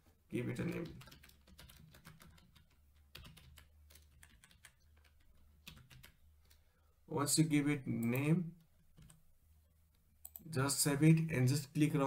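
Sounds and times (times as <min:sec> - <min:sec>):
faint keyboard typing: 0:00.5 - 0:06.7, 0:07.9 - 0:09.2, 0:09.9 - 0:10.5.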